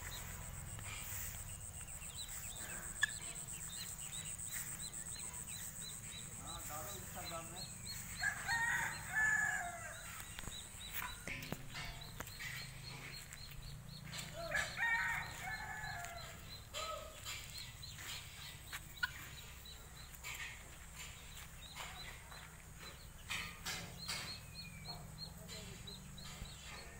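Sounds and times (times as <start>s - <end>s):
poultry harsh calls: 0.0s - 19.6s.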